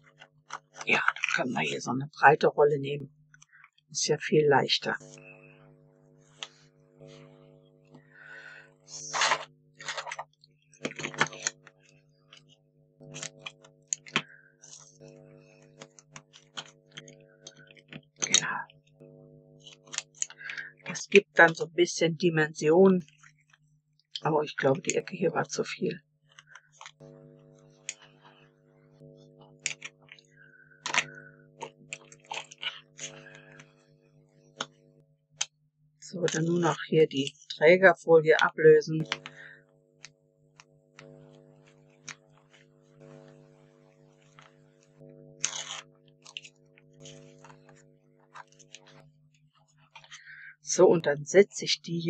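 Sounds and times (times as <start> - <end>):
steady low hum: 0.0 - 52.0
scissors snipping tape: 45.4 - 46.5
foam tape pulled and pressed: 45.4 - 47.2.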